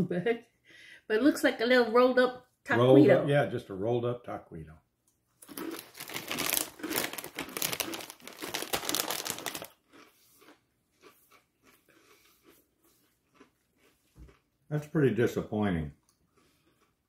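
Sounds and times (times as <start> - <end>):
tortilla chips crunching: 5.4 - 14.4.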